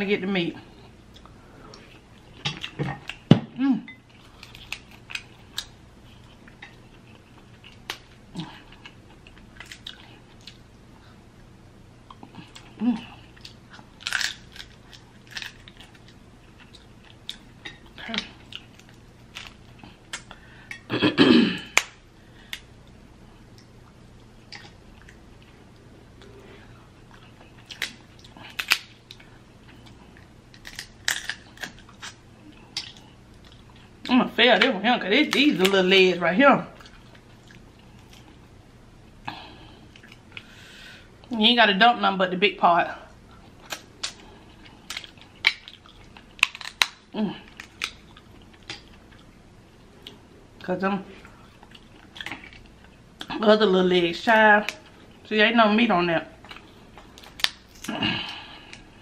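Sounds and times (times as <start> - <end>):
chewing: 4.0 - 10.8, 12.0 - 20.9, 23.4 - 34.0, 36.7 - 38.5, 39.3 - 40.5, 43.3 - 50.2, 51.1 - 53.4
crab shells cracking: 13.4 - 20.8, 21.7 - 22.7, 27.7 - 29.2, 30.5 - 33.0, 43.7 - 49.1, 57.0 - 58.0.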